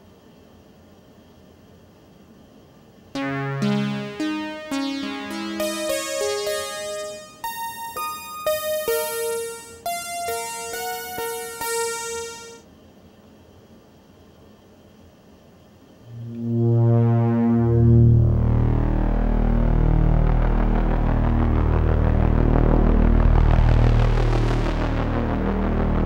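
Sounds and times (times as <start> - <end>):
synthesizer chords and notes: 3.2 - 12.6, 16.1 - 26.0.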